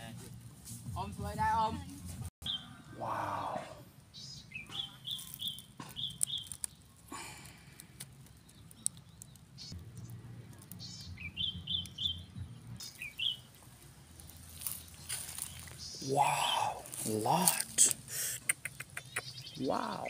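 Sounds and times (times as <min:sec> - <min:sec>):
bird chirping: 0:02.4 - 0:07.0, 0:08.1 - 0:20.0
sharp clicks: 0:17.8 - 0:19.4.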